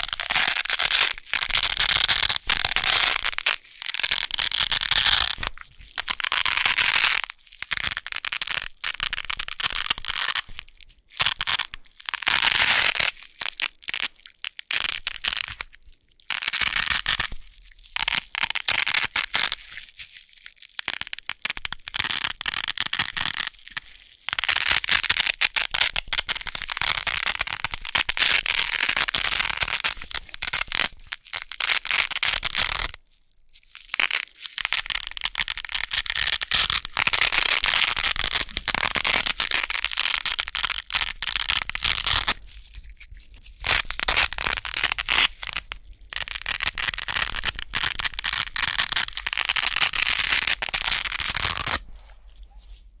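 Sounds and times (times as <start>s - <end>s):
hook-and-loop strips ripping: 0.0s - 33.0s, 33.6s - 53.0s.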